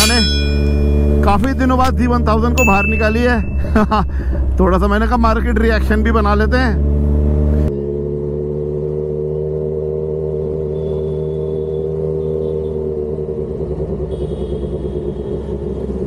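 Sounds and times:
motorcycle engine running at low revs: 6.8s - 16.0s.

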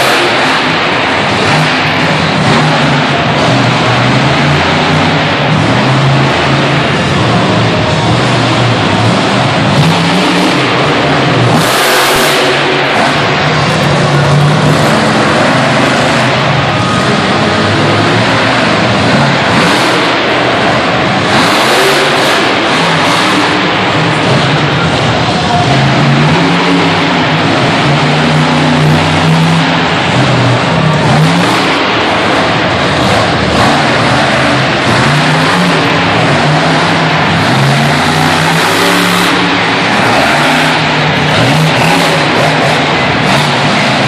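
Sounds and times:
truck engine revving: 0.0s - 44.0s.

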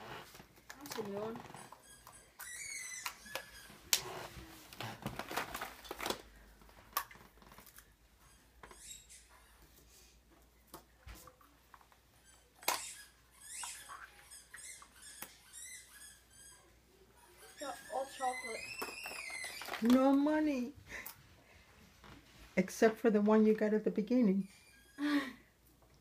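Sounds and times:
plastic eggs clicking and rustling: 0.4s - 1.8s, 4.7s - 8.0s, 17.6s - 20.6s.

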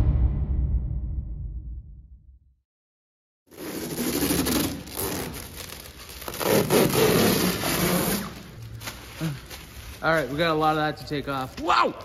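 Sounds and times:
plastic film peeling and crinkling: 3.5s - 12.0s.

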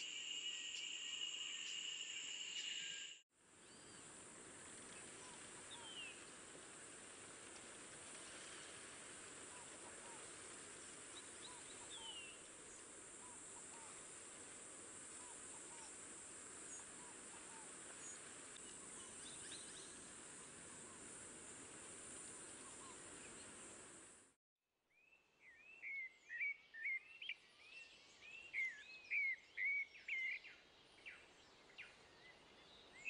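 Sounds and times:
descending whistles: 0.0s - 3.2s
high insect drone: 0.0s - 3.2s.

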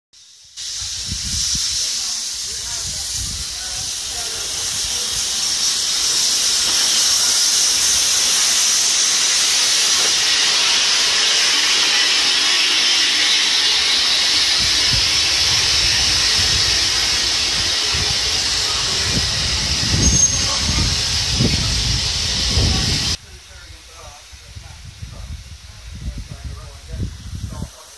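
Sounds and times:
steam hissing loudly: 0.2s - 27.9s
short high squeal: 19.8s - 20.8s.

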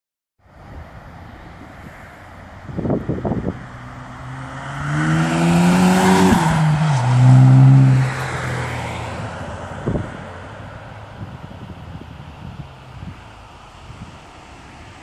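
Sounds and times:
car engine accelerating past: 3.2s - 10.5s.

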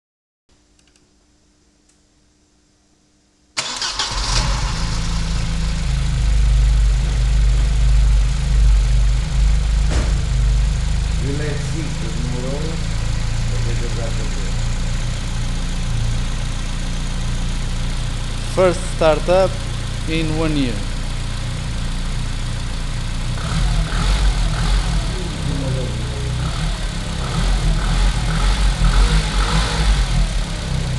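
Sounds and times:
faint clicks: 0.8s - 1.1s
car engine starting and idling: 3.6s - 30.9s.

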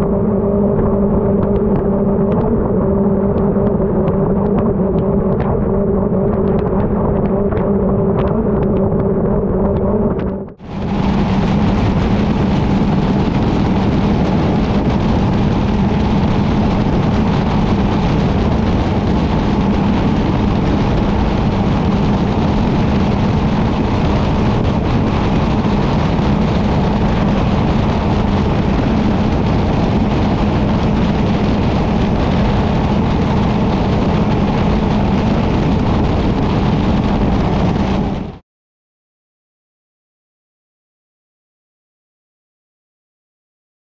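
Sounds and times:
outboard engine running: 0.0s - 38.4s
rush of spray and wind: 10.6s - 38.4s.

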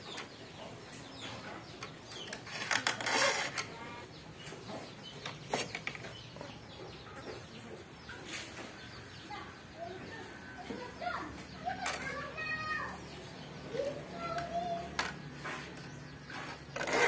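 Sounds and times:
chickens clucking: 0.0s - 17.0s
metal saw scraping: 15.4s - 17.0s.

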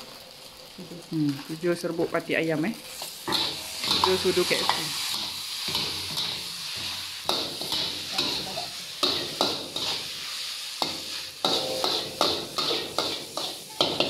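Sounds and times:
noodles sizzling in a wok: 0.0s - 14.0s
metal spatula scraping a wok: 2.8s - 14.0s.

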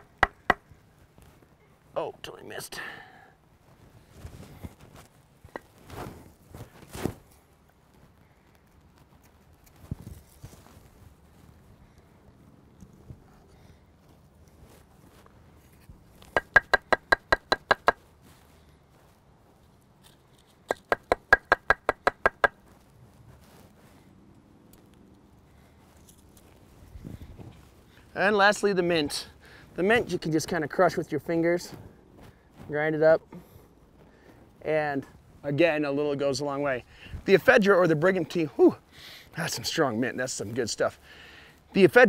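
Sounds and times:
wooden block knocking on rock: 0.0s - 0.6s, 16.4s - 18.0s, 20.7s - 22.6s.

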